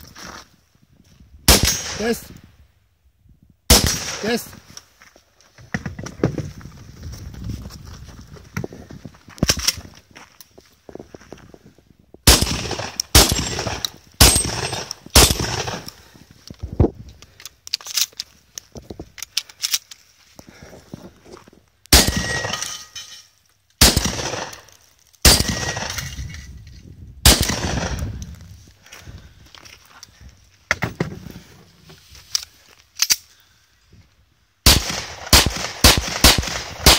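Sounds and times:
shotgun blasts: 1.5s - 2.2s, 3.7s - 4.5s, 12.3s - 15.9s, 21.9s - 22.6s, 23.8s - 24.6s, 25.2s - 26.0s, 27.2s - 28.2s, 34.6s - 36.9s
shells clicking into magazine: 32.4s - 33.3s.

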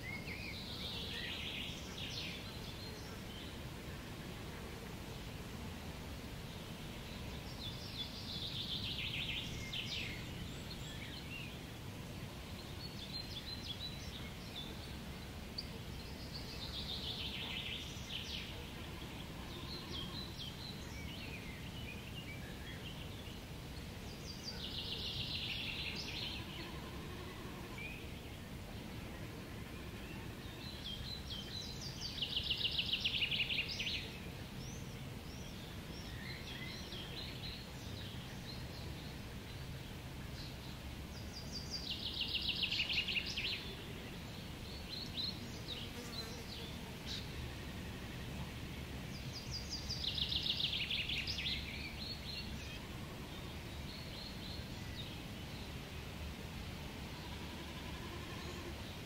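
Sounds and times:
songbird trilling song: 7.0s - 11.6s, 29.2s - 47.6s, 48.7s - 55.7s.

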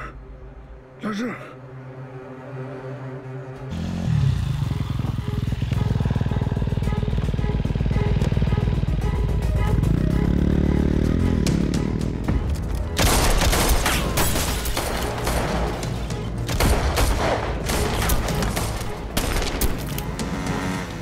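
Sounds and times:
dramatic score music: 0.0s - 21.0s
motorcycle engine slowing down: 3.7s - 12.6s
gunshots: 13.0s - 19.9s.

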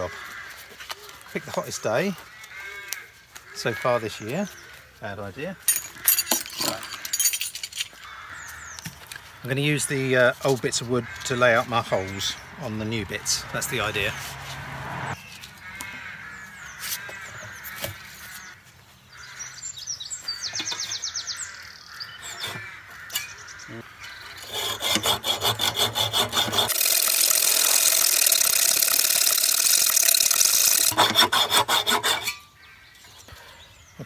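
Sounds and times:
hacksaw rasping through bolt: 24.4s - 32.5s.

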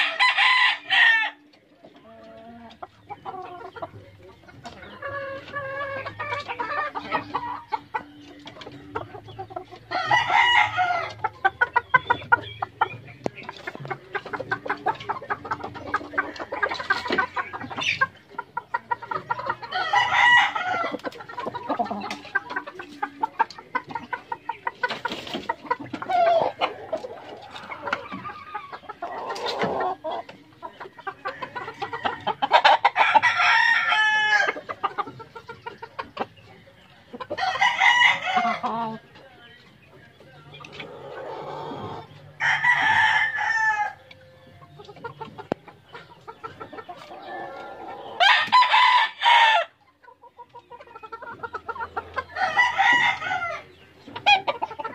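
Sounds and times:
roosters crowing: 0.0s - 1.5s, 9.8s - 11.3s, 19.4s - 21.1s, 31.2s - 34.7s, 37.3s - 39.0s, 40.9s - 44.1s, 47.1s - 49.8s, 52.2s - 54.5s
chickens clucking: 0.0s - 54.9s.

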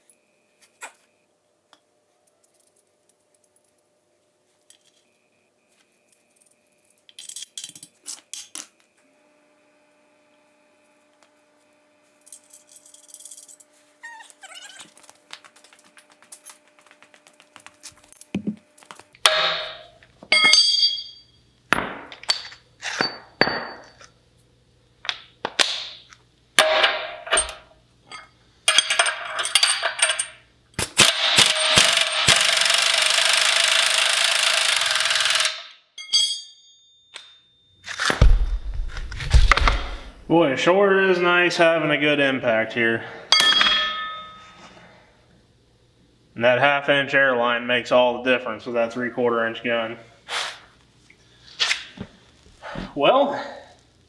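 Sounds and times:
metal sockets clinking: 27.3s - 30.4s
pneumatic impact wrench bursts: 30.8s - 35.6s.

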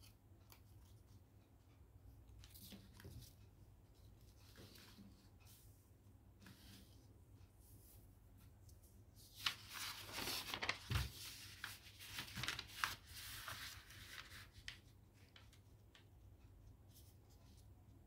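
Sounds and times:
paper rustling and crackling: 9.3s - 16.0s.

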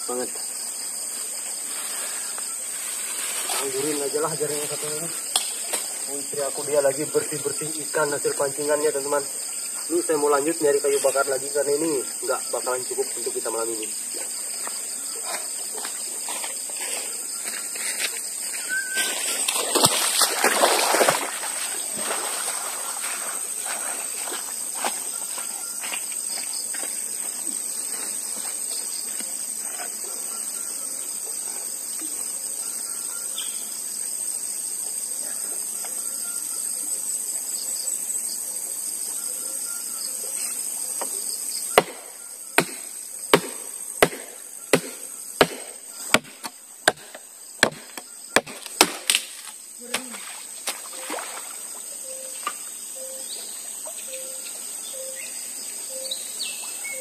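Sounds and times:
insects buzzing: 0.0s - 57.0s
axe chopping firewood: 41.7s - 50.8s.

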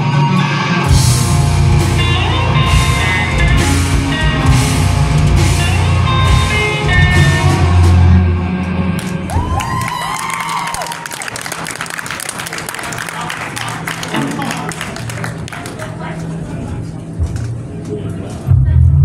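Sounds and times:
live rock band playing: 0.0s - 9.8s, 13.9s - 15.4s.

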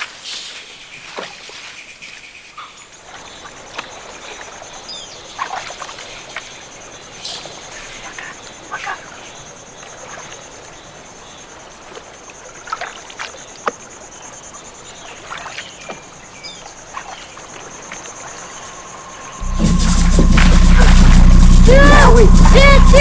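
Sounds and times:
water splashing from canoe paddling: 3.1s - 8.8s, 11.6s - 18.7s
high-pitched insect drone: 17.5s - 23.0s.

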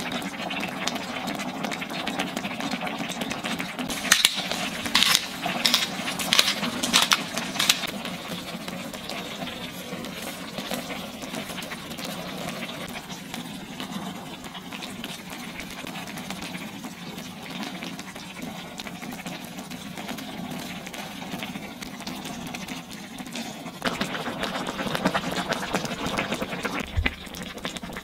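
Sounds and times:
tomato sauce simmering and bubbling: 0.0s - 28.0s
cheese grater scraping: 3.9s - 7.9s.

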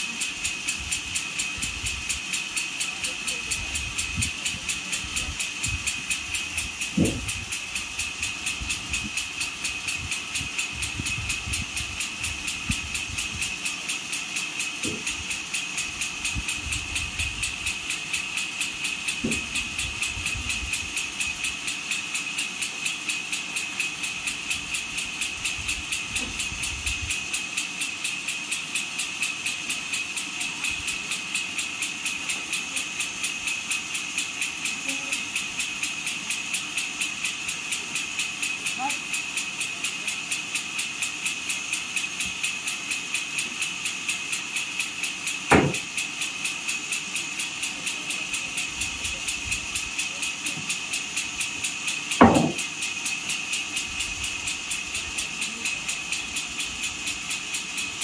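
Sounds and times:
engine running with whine: 0.0s - 58.0s
logs thudding: 45.5s - 45.8s, 52.2s - 52.6s.

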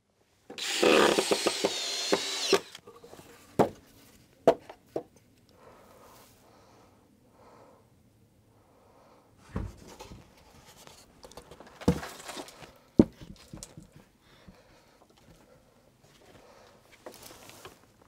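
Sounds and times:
wood scraping and rustling: 9.4s - 13.9s.

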